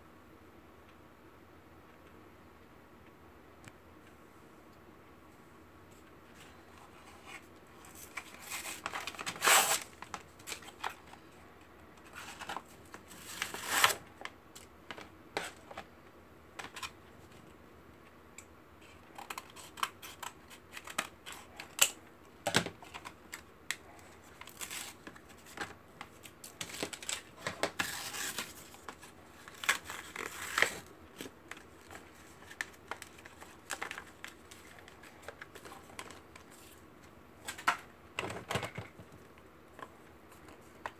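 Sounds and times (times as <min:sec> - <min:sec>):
plastic packaging crinkling and tearing: 0:07.8 - 0:11.0, 0:12.1 - 0:14.3, 0:22.8 - 0:36.8.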